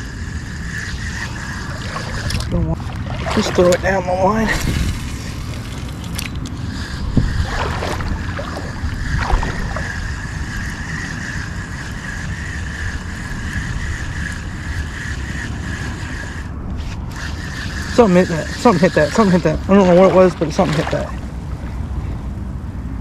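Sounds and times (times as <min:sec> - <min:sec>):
thin high-pitched whine: 0:00.0 - 0:02.8, 0:08.0 - 0:21.0
wind on microphone: 0:00.0 - 0:23.0.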